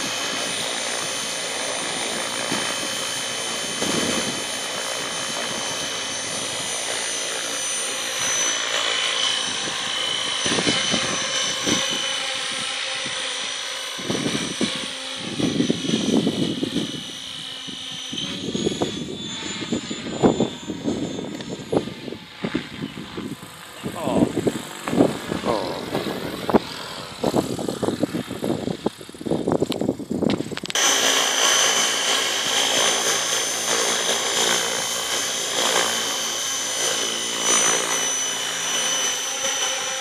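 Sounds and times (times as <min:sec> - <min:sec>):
model helicopter high whine: 0:00.0 - 0:40.0
rotor noise: 0:00.0 - 0:40.0.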